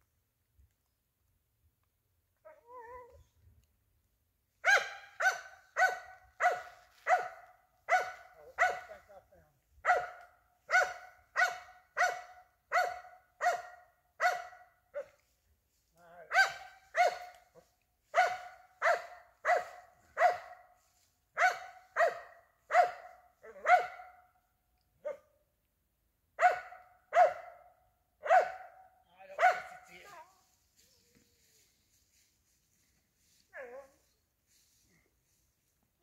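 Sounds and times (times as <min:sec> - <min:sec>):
dog barking: 0:04.6 - 0:09.1, 0:09.8 - 0:15.2, 0:16.3 - 0:20.8, 0:21.4 - 0:24.3, 0:25.0 - 0:25.4, 0:26.4 - 0:30.0, 0:33.6 - 0:34.0.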